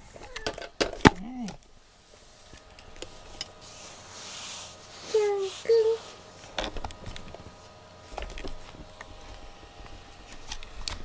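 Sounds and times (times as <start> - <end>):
faint steady hum: 0.0 - 11.0
fur rustling: 3.2 - 6.5.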